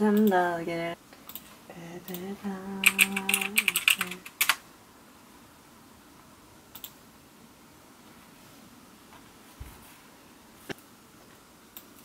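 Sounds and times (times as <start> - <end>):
typing on computer keyboard: 2.8 - 4.6
faint clicks: 6.7 - 7.0.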